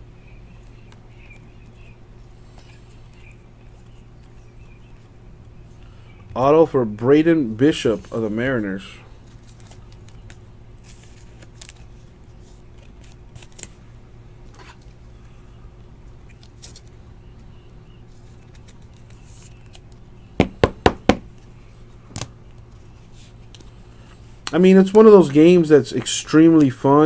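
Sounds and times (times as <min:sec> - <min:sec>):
steady low hum: 0:00.0 - 0:27.0
trading cards rustling and clicking: 0:09.2 - 0:13.8, 0:16.1 - 0:20.2, 0:22.1 - 0:26.9.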